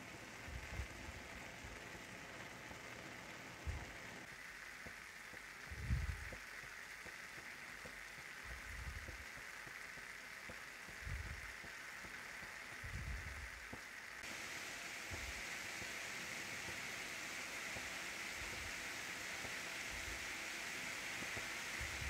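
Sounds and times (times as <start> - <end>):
food sizzling in a frying pan: 0.0 - 22.0
dull low bumps: 10.9 - 11.5.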